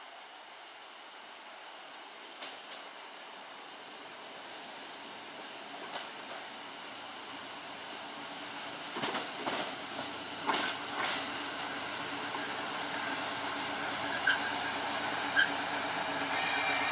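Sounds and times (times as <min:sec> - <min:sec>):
diesel railcar approaching: 0:00.0 - 0:16.9
rail joint clicks: 0:02.3 - 0:02.9, 0:05.8 - 0:06.6, 0:08.9 - 0:16.9
short squeals: 0:16.3 - 0:16.9.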